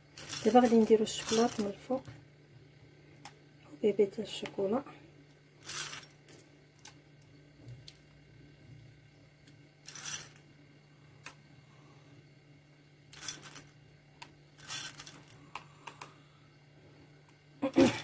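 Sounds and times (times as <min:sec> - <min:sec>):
chocolate chips rattling: 0:00.0 - 0:01.9, 0:05.6 - 0:06.9, 0:09.8 - 0:10.4, 0:13.1 - 0:13.7, 0:14.6 - 0:15.4
low steady hum: 0:00.0 - 0:18.0.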